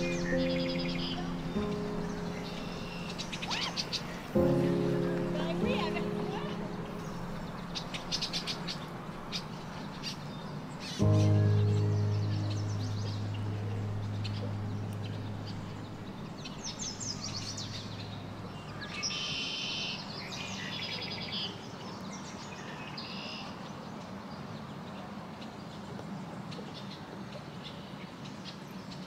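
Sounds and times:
songbird trilling and chirping: 0:00.0 - 0:21.6
outdoor background noise: 0:00.0 - 0:29.0
low held music note: 0:11.0 - 0:18.8.

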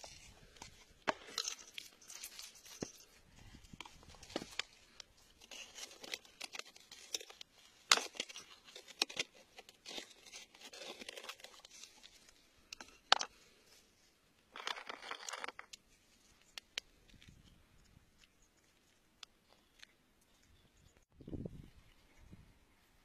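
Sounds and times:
metal tool scraping in gritty soil: 0:00.0 - 0:13.4.

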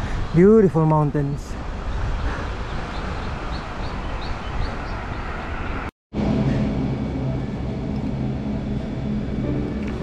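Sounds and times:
wind rushing over microphone: 0:00.0 - 0:10.0
steady low tones: 0:06.2 - 0:10.0.

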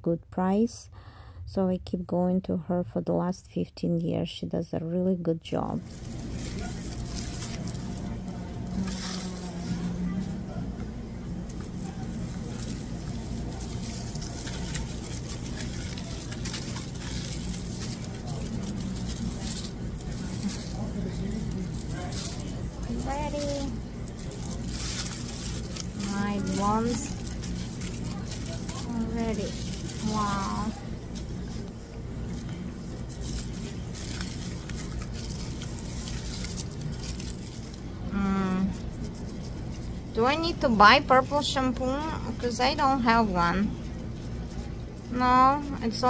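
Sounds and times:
steady low hum: 0:00.0 - 0:46.0
foil crinkling: 0:05.8 - 0:41.6.

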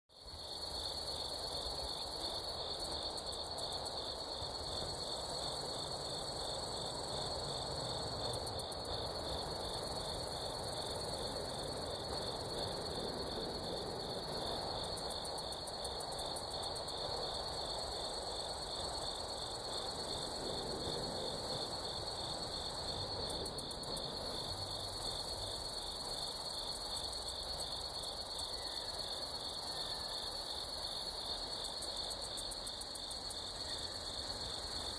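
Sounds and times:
insects trilling: 0:00.2 - 0:34.9.

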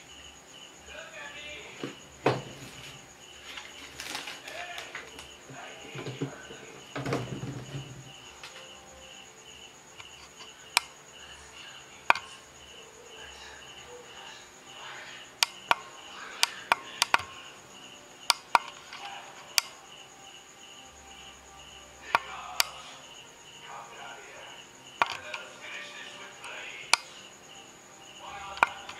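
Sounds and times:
cricket chirping: 0:00.0 - 0:28.9
sharp clicks and taps: 0:12.1 - 0:12.3, 0:15.4 - 0:17.3, 0:18.3 - 0:19.8, 0:25.0 - 0:25.4.

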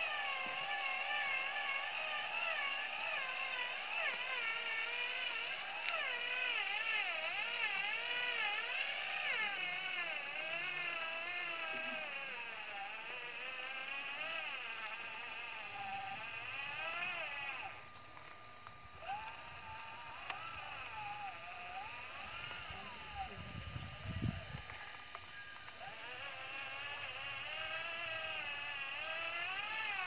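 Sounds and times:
electric motor whining: 0:00.0 - 0:30.0.

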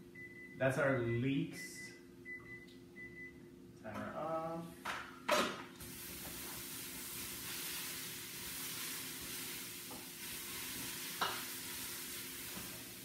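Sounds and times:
vegetables sizzling in oil: 0:05.8 - 0:13.0.

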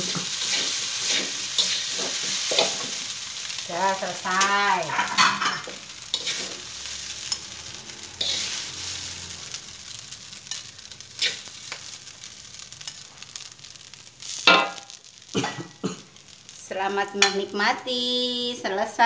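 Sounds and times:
metal spatula scraping wok: 0:00.0 - 0:11.9
rice sizzling: 0:00.0 - 0:19.0.

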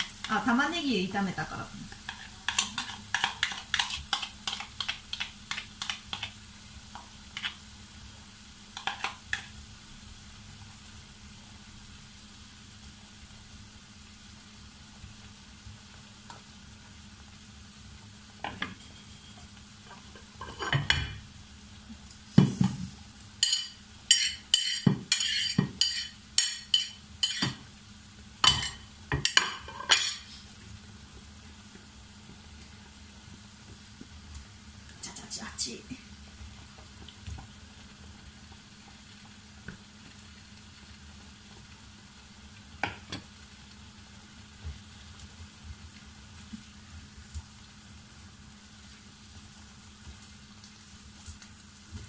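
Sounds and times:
pork frying in a pan: 0:00.0 - 0:52.0
utensils tapping a pan: 0:02.0 - 0:06.3, 0:08.8 - 0:09.5, 0:22.4 - 0:27.6, 0:28.4 - 0:30.2
metal spoon clinking on pan and plate: 0:23.4 - 0:27.6, 0:28.4 - 0:30.2.

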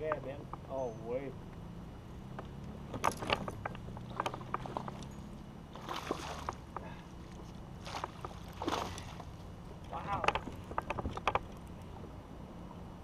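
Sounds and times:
tackle and hull knocks: 0:10.1 - 0:11.6.

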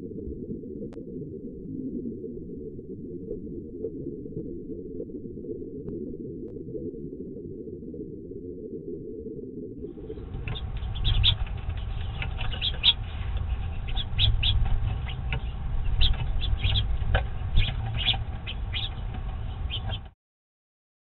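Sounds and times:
low rumble: 0:09.8 - 0:20.2
finches chirping: 0:10.0 - 0:20.1.

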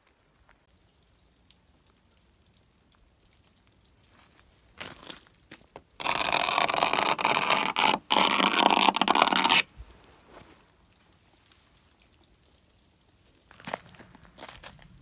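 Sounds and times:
knife scraping ice off metal: 0:06.0 - 0:09.6.

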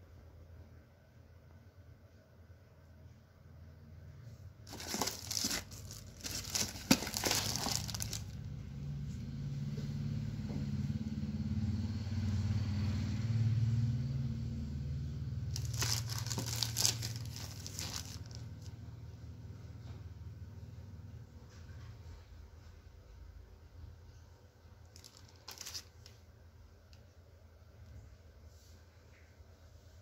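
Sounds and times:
plastic packaging crinkling: 0:04.7 - 0:08.4, 0:15.5 - 0:18.7, 0:24.9 - 0:26.2.

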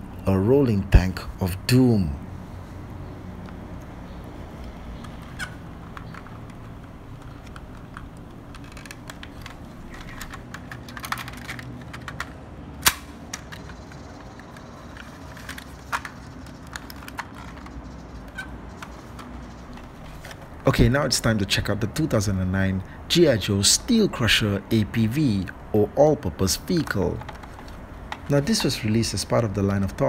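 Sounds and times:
plastic toy parts clicking: 0:04.5 - 0:20.7, 0:26.5 - 0:30.0.

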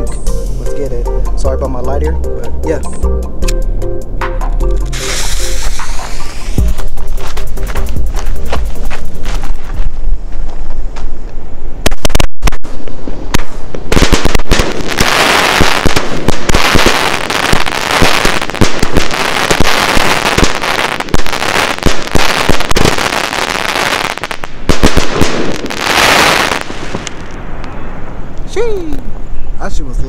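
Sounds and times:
fireworks aerial bursts: 0:04.8 - 0:11.0, 0:11.7 - 0:29.1
fireworks launch thumps: 0:04.9 - 0:09.9
fireworks crackle: 0:04.9 - 0:29.0.

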